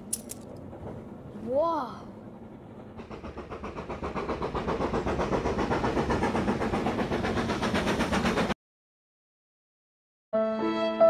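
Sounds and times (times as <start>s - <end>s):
steam locomotive chuffing: 0.0s - 8.6s.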